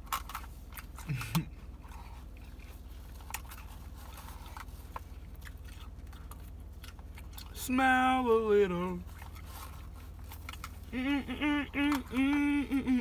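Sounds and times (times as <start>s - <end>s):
chewing with lip smacks: 0.0s - 8.0s, 9.0s - 13.0s
person humming: 10.9s - 13.0s.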